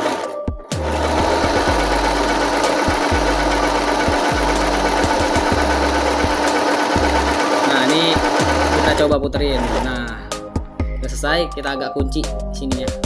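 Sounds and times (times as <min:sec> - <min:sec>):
sewing machine running: 0:00.0 - 0:10.2.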